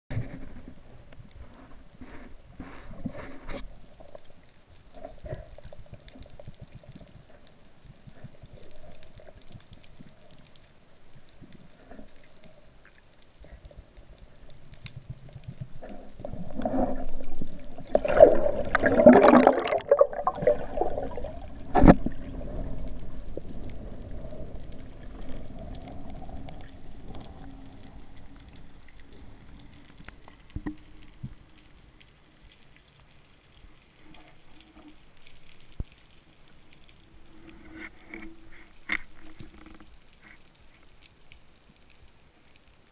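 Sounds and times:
underwater gurgling wash: 0.2 - 31.6.

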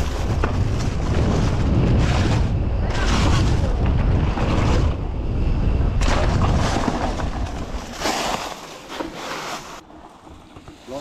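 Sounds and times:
wind buffeting microphone: 0.0 - 8.1.

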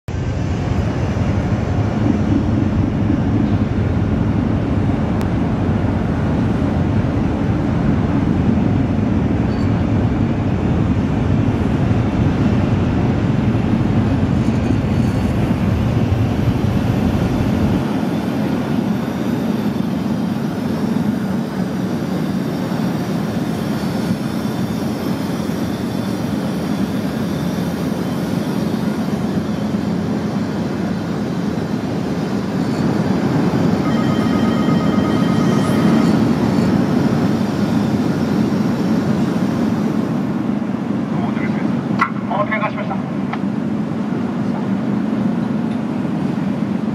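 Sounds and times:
ship engines droning: 0.1 - 46.9.

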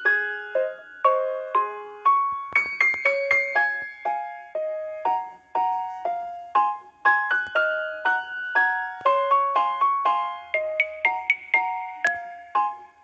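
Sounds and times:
piano melody: 0.0 - 13.0.

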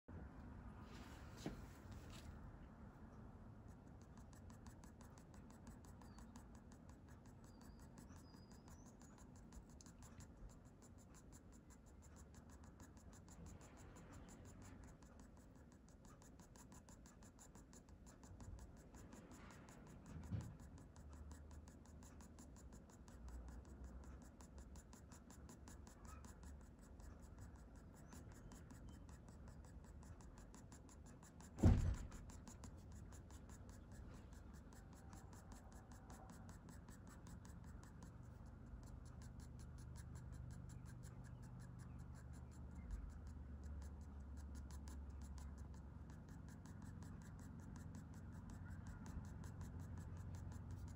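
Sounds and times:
thump: 1.3 - 1.7, 20.1 - 20.6, 31.6 - 32.5
pencil scratching on paper: 3.1 - 50.9.

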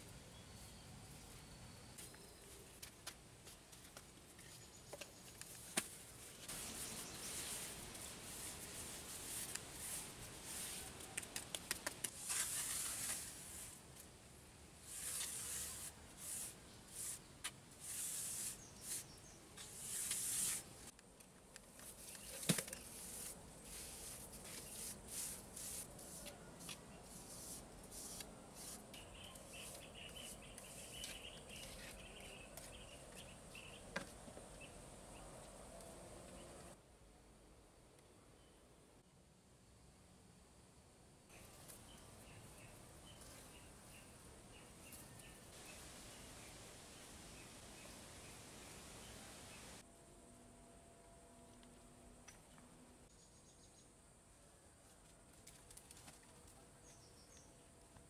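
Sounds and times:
trowel scraping wet mortar: 12.1 - 13.5.

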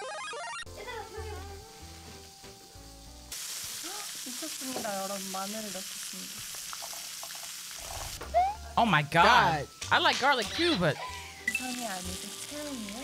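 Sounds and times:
background music: 0.7 - 4.7, 7.8 - 13.0
meat sizzling on a grill pan: 0.8 - 8.2, 9.1 - 13.0.

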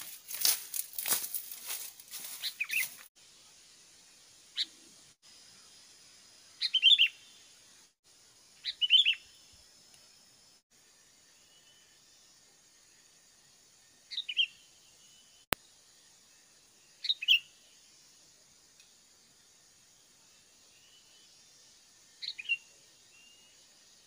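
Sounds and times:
crackling rustle: 0.0 - 3.1
faint high hiss: 0.0 - 24.0
small bird chirping: 1.6 - 3.1, 4.5 - 5.7, 6.4 - 7.9, 8.5 - 12.4, 14.0 - 15.6, 16.2 - 18.2, 20.3 - 24.0.

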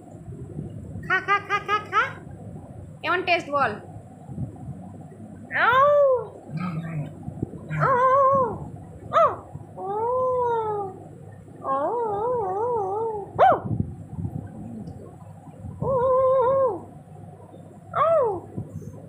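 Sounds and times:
dog yelping: 7.7 - 9.5, 11.7 - 13.7
dogs whining and howling: 7.7 - 13.8, 15.8 - 17.0, 17.9 - 18.6.

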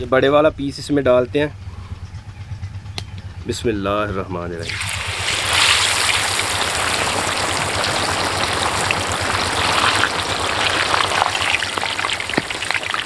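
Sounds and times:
fish deep-frying in oil: 4.6 - 13.0.

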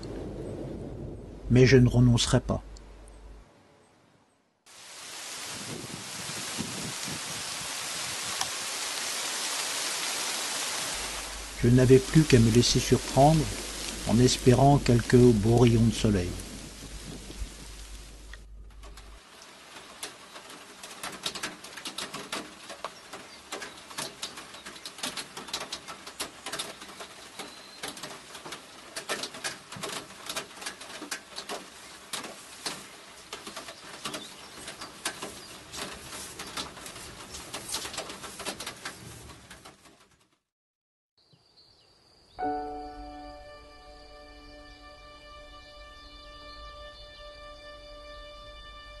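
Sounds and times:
rain drops tapping: 0.0 - 0.8, 4.7 - 40.4
steady rain hiss: 0.0 - 3.0, 4.6 - 40.1.

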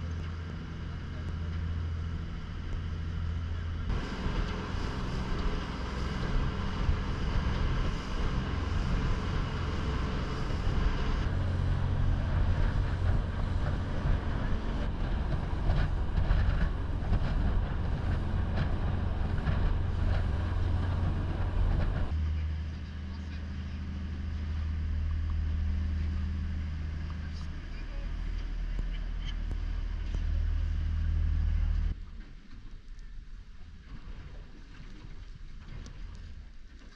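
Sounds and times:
motorboat engine running: 0.0 - 32.2
wind buffeting microphone: 0.4 - 32.0
water rushing past hull: 2.0 - 23.0.

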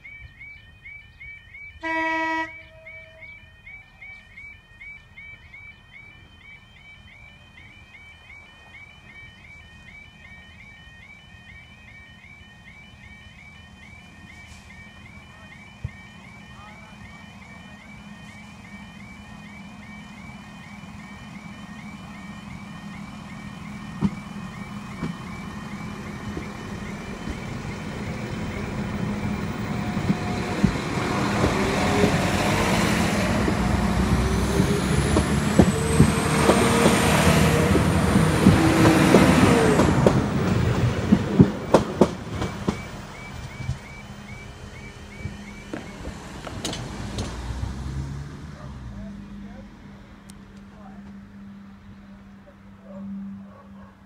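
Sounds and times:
level crossing alarm yodel: 0.0 - 47.1
diesel train passing with whine: 0.0 - 54.0
train wheels clacking on rail joints: 29.8 - 32.8, 33.4 - 43.9.

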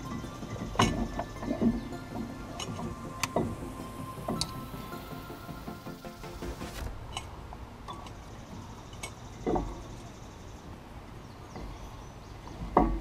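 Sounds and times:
dull metal clunks: 0.0 - 4.6, 9.0 - 9.9, 12.5 - 13.0.

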